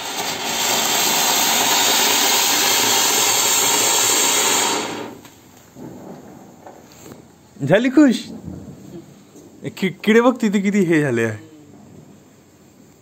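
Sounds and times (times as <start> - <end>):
firework spraying sparks hissing: 0.0 - 7.4.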